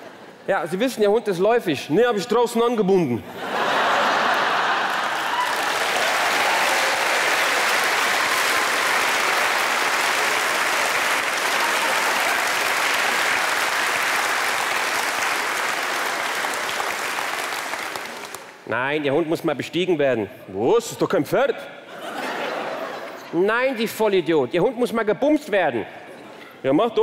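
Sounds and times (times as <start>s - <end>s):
audience applauding: 3.8s - 18.6s.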